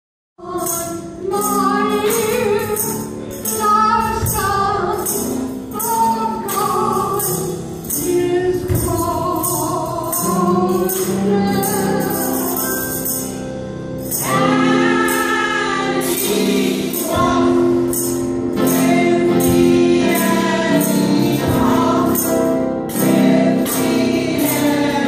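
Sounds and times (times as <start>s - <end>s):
woman singing gospel: 0.4s - 12.9s, 18.6s - 25.0s
steady percussion beat: 1.4s - 13.3s, 14.1s - 25.0s.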